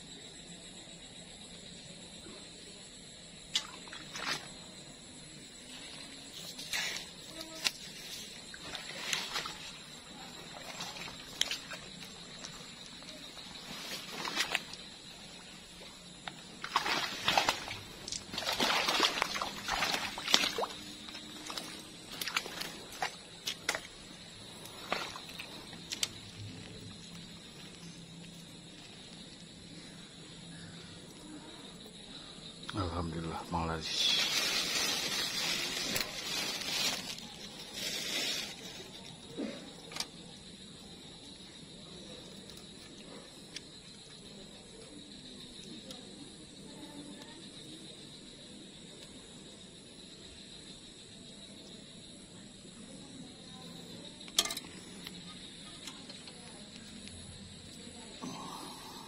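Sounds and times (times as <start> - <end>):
footsteps squelching through wet ground: 6.3 - 15.0, 15.8 - 28.6
plastic bag rustling: 34.2 - 38.7.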